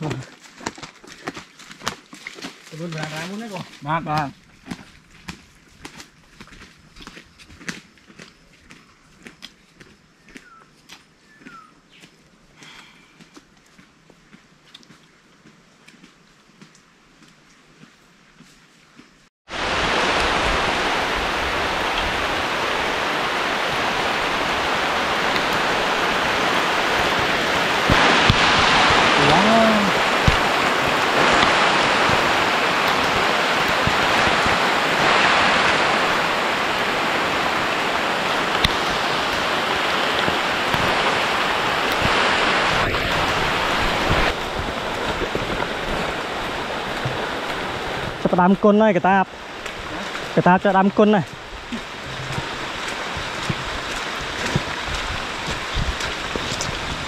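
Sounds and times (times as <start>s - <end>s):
heavy rain on foliage: 0.0s - 4.9s, 19.5s - 57.0s.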